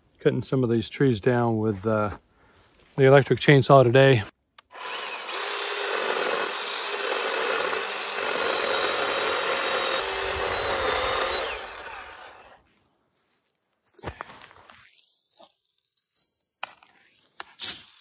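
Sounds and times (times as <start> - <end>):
electric chainsaw cutting wood: 4.6 - 12.6.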